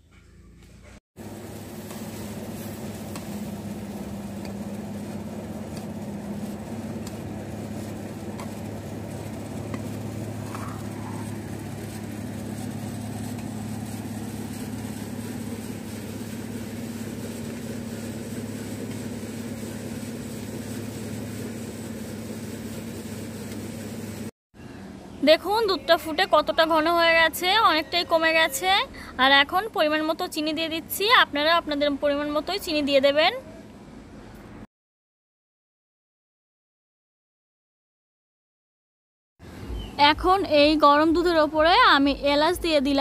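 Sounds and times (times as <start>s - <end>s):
milk boiling: 1.2s - 24.3s
steel ladle stirring: 1.9s - 20.1s.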